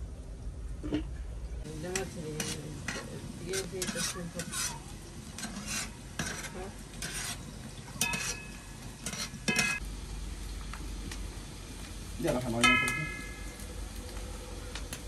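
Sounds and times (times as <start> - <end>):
food sizzling: 1.6 - 15.0
utensil scraping a cooking pot: 1.9 - 9.8.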